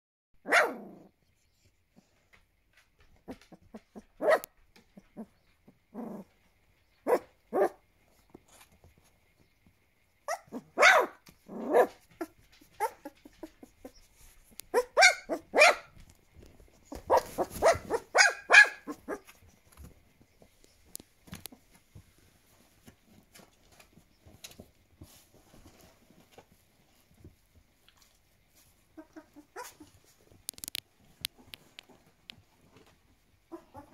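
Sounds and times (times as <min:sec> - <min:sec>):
puppy yelping and barking: 0:00.4 - 0:01.1, 0:03.3 - 0:05.3, 0:07.0 - 0:07.8, 0:10.2 - 0:14.0, 0:14.7 - 0:16.0, 0:16.9 - 0:19.4, 0:29.0 - 0:30.0, 0:33.5 - 0:33.9
faint scuffling: 0:11.2 - 0:33.9.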